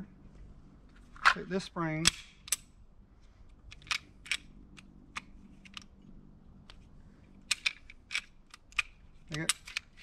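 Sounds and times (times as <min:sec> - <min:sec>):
pistol metallic clicks: 0:02.0 - 0:02.8, 0:03.7 - 0:06.0, 0:07.4 - 0:10.0.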